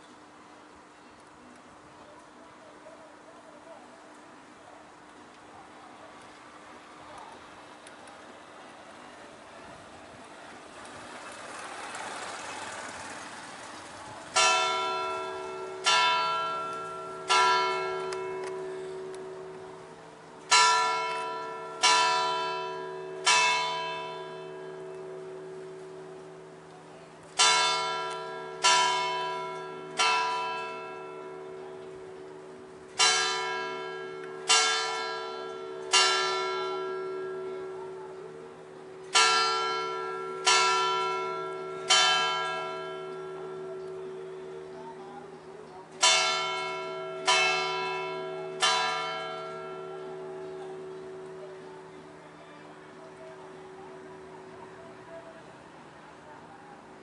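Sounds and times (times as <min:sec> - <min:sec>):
church tower bell ringing: 0:14.3 - 0:55.0.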